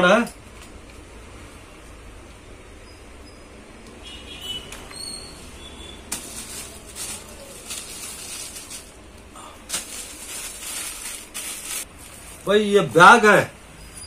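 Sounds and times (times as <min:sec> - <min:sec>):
plastic packaging crinkling: 0:06.1 - 0:12.6.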